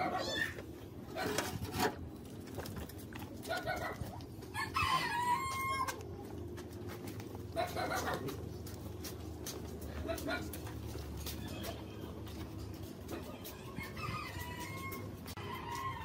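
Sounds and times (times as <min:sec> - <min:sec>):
rooster crowing: 0:04.5 - 0:06.0, 0:13.7 - 0:16.0.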